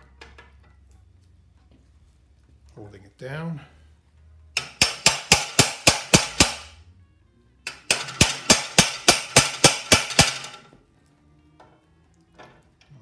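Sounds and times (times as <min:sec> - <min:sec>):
hammer striking metal rod: 0:04.6 - 0:06.8, 0:07.7 - 0:10.6.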